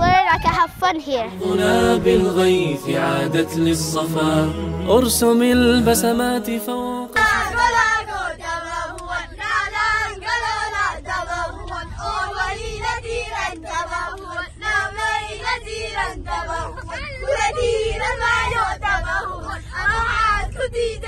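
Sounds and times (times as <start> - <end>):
bus rumble: 0.0 - 21.0
children singing in unison: 1.3 - 19.6.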